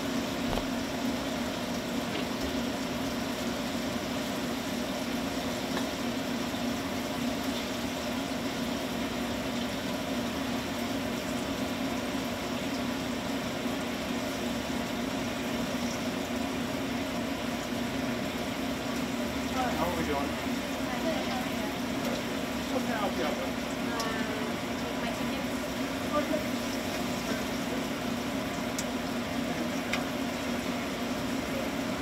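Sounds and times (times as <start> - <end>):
machine motor humming: 0.0 - 1.3.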